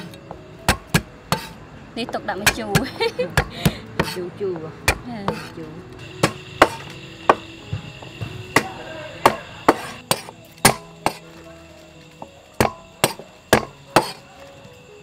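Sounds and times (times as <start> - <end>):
cleaver chopping on wooden block: 0.7 - 1.6, 6.2 - 7.5, 8.6 - 11.2, 12.6 - 14.2.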